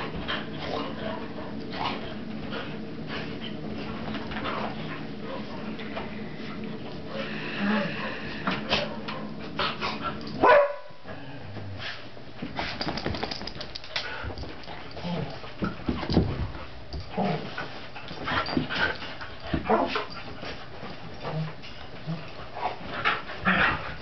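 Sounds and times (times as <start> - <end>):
dog barking and whimpering: 10.4 - 11.0.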